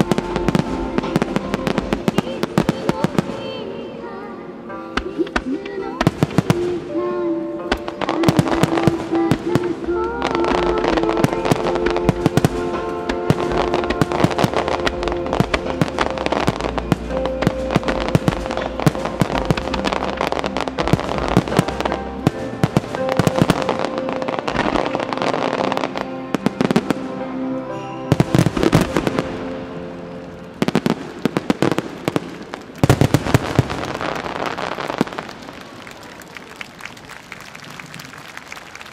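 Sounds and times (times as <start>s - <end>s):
music soundtrack: 0.0s - 38.9s
firework shells bursting with crackle: 7.7s - 26.9s, 28.1s - 36.8s.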